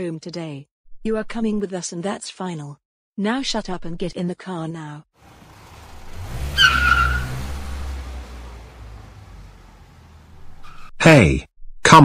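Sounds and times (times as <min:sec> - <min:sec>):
car engine rumble: 0:05.2 - 0:10.9
tyre squeal: 0:06.3 - 0:08.0, 0:10.4 - 0:11.0.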